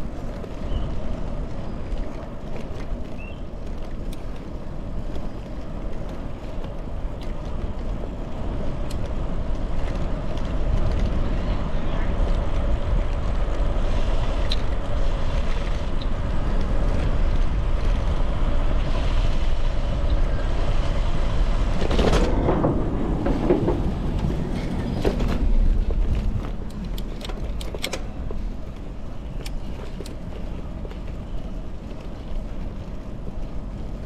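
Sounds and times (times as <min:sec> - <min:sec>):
bicycle tyres on asphalt: 0:00.0 - 0:34.0
wind on the microphone: 0:00.0 - 0:34.0.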